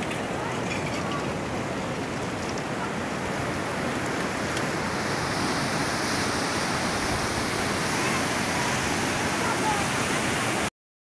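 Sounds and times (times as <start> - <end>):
river rushing in flood: 0.0 - 10.7.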